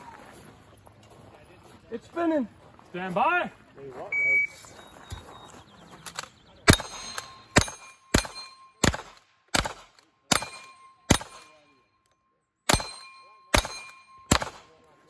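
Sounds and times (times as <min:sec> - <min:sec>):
rifle shots: 0:06.1 - 0:11.6, 0:12.7 - 0:14.8
steel plate ringing: 0:06.7 - 0:08.9, 0:12.7 - 0:14.3.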